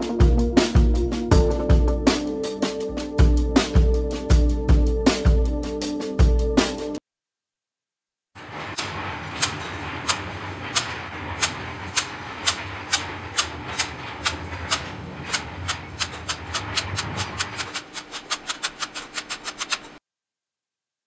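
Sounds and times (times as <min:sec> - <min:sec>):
steady machine hum: 0:08.4 - 0:20.0.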